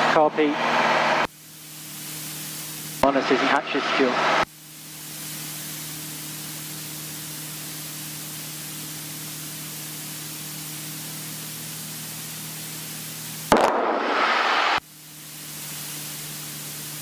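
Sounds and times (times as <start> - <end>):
sudden loud burst of sound: 13.5 - 14.8.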